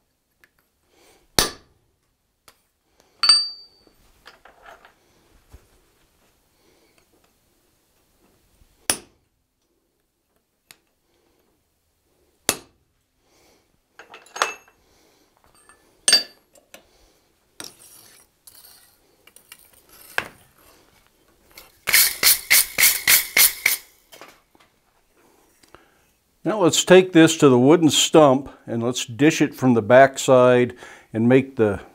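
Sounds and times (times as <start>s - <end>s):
hammer striking hand punch: 1.4s - 1.7s, 8.9s - 9.1s, 12.5s - 12.8s.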